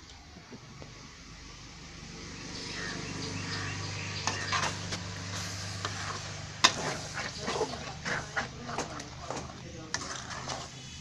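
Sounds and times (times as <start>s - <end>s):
metal ladle clinking and scraping: 4.2s - 11.0s
food sizzling in pan: 4.4s - 8.4s.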